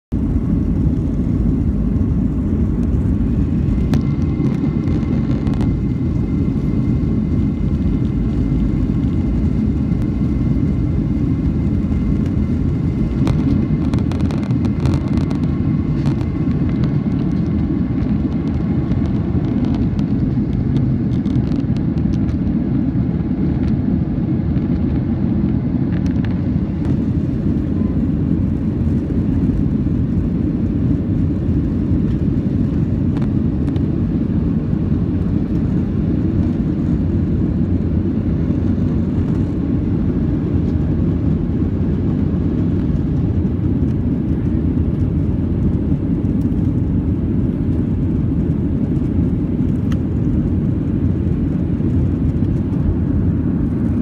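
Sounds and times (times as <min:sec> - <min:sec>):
jet engines rumbling in cabin: 0:00.1 - 0:54.0.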